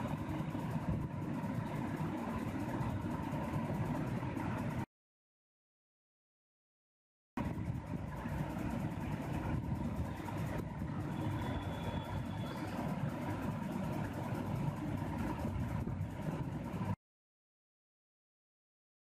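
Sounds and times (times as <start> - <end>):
low background rumble: 0.0 - 4.9, 7.4 - 17.0
faint steady tone: 7.4 - 16.9.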